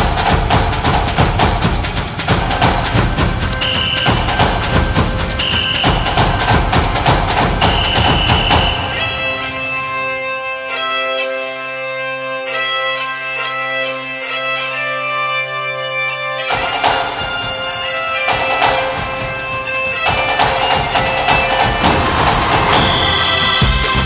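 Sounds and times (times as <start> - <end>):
drums and percussion: 0.0 - 10.4, 16.4 - 24.0
bagpipe drone: 0.0 - 24.0
bagpipe tune: 0.0 - 24.0.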